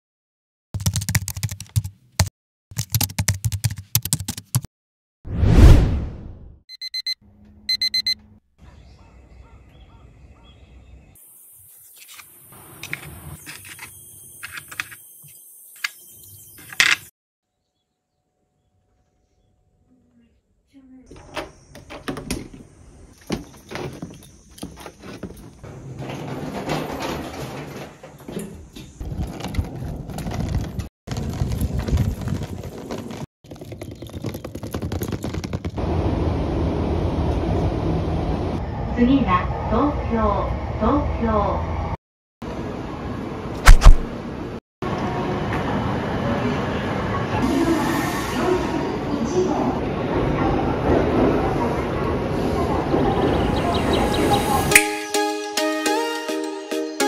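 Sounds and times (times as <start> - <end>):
alarm clock beeping: 6.7 - 8.2
suitcase wheels rolling on asphalt: 23.2 - 36.2.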